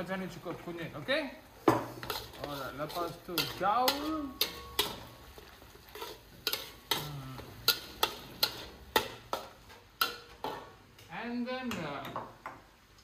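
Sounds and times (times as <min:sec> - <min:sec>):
low sizzle of frying: 0:00.0 - 0:13.0.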